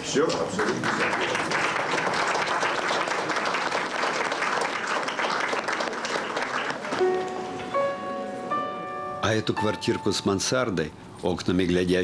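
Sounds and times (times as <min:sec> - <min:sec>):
audience applauding: 0:00.0 - 0:07.4.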